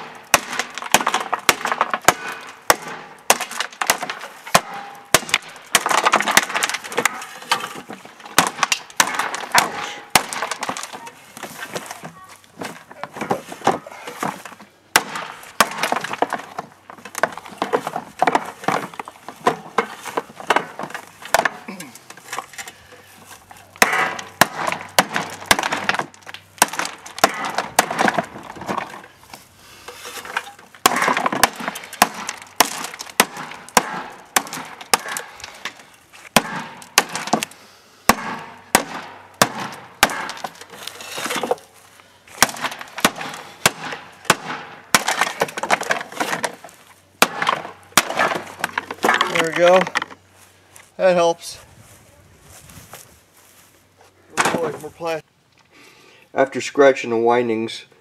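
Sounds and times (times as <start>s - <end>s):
plastic shards clattering: 3.4s - 14.6s, 29.9s - 33.8s, 40.2s - 41.8s, 44.9s - 50.2s.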